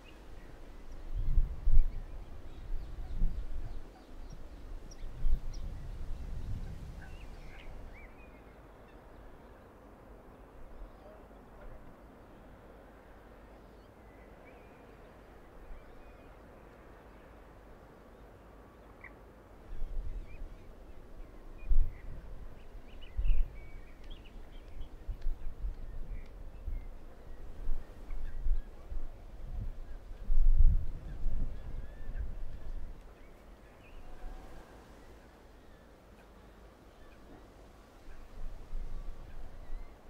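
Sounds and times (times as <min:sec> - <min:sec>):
wind buffeting microphone: 0:00.0 - 0:08.1, 0:19.7 - 0:34.6.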